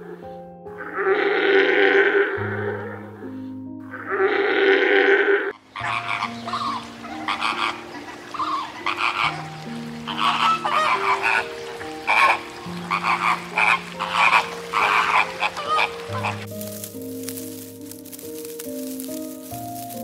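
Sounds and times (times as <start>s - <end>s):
music of low held notes: 0.0s - 20.0s
flamingos calling: 4.1s - 18.4s.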